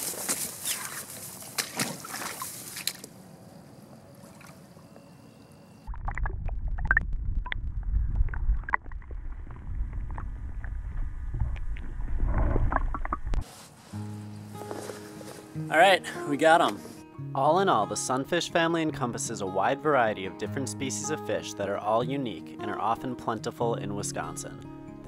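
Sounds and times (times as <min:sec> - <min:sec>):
muffled underwater rumble: 0:05.9 - 0:13.4
underwater knocks and clicks: 0:05.9 - 0:13.4.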